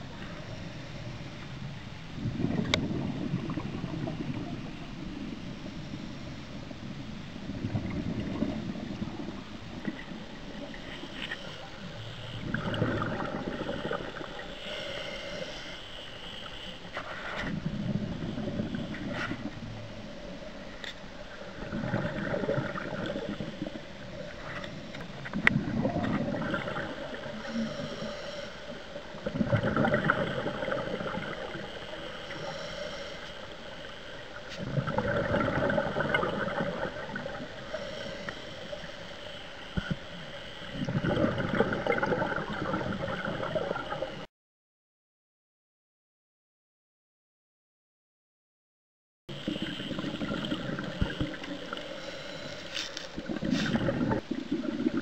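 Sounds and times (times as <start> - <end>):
regulator exhaled bubbles rushing: 2.2 - 5.4, 7.4 - 11.0, 12.4 - 14.4, 17.4 - 19.6, 21.4 - 27.5, 29.2 - 31.9, 34.4 - 37.6, 40.6 - 44.2, 49.3 - 51.9, 53.1 - 55.0
regulator inhale hiss: 10.0 - 21.4, 26.8 - 29.2, 30.4 - 34.7, 37.0 - 40.8, 49.4 - 54.2.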